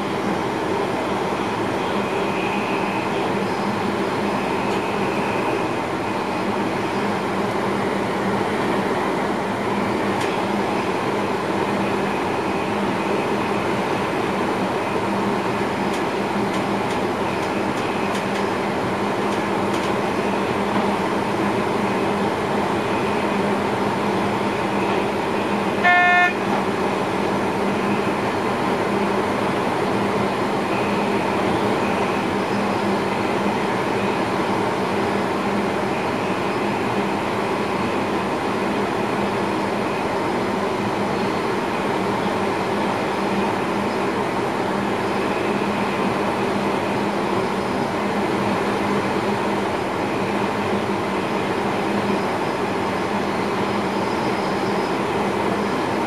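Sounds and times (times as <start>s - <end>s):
train running noise: 0.0s - 56.0s
train horn toot: 25.8s - 26.5s.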